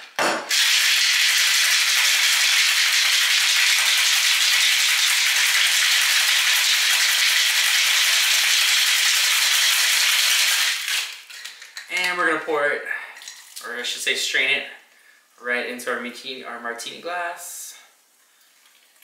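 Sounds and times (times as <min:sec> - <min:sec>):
cocktail shaker being shaken: 0:01.7 - 0:11.8.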